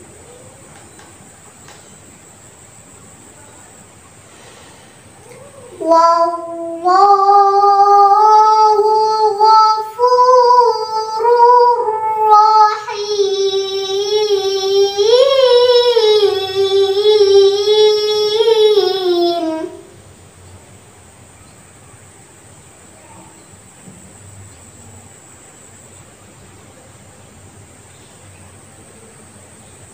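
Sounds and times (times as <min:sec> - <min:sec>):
girl reciting melodically: 0:02.7 - 0:20.4.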